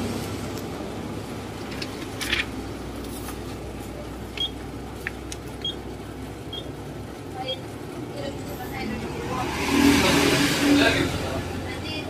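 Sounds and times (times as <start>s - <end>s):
photocopier humming: 0.0s - 9.1s.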